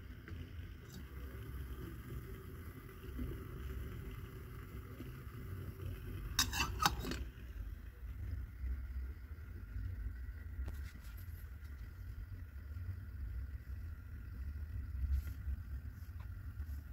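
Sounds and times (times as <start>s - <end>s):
metal mug clinking on stove: 6.4s - 7.3s.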